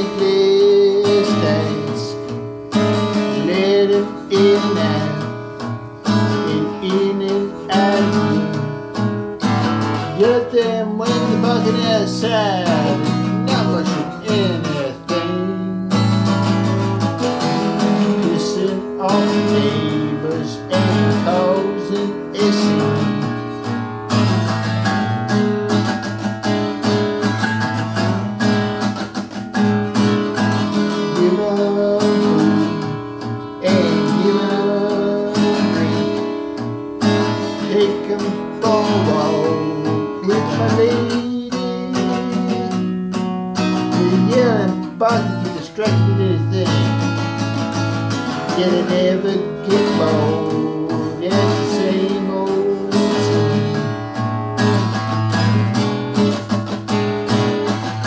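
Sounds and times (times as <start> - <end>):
acoustic guitar strumming: 0.0 - 58.0.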